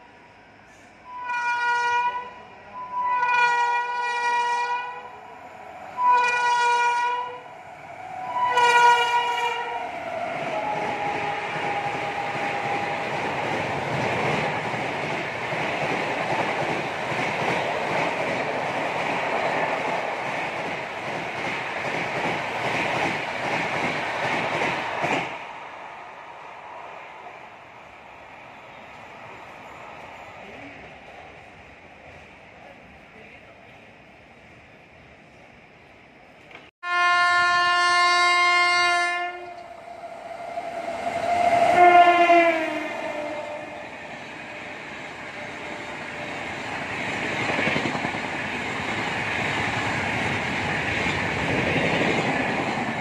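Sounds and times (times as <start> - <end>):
train coaches rumbling past: 0.0 - 53.0
locomotive horn blasts: 1.1 - 5.1, 6.0 - 7.4, 8.2 - 9.8, 10.6 - 12.9, 36.8 - 39.7, 41.7 - 43.8.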